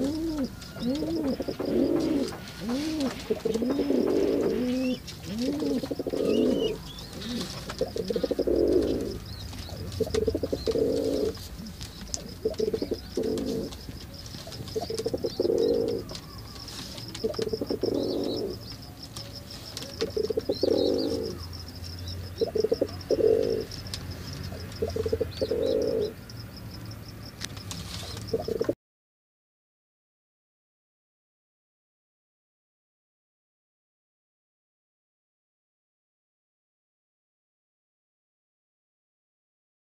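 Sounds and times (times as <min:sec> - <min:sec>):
pigeons cooing: 0:00.0 - 0:26.2, 0:27.8 - 0:28.8.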